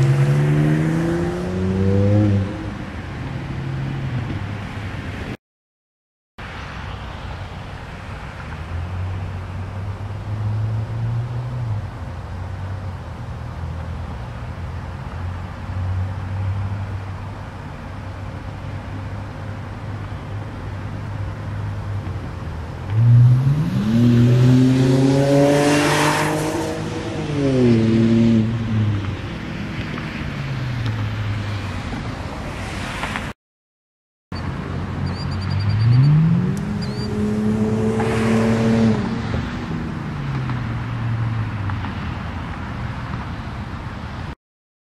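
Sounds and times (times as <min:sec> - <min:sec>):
car engine revving and passing: 0:00.0 - 0:04.9, 0:08.4 - 0:12.7, 0:21.2 - 0:33.4, 0:34.7 - 0:43.4.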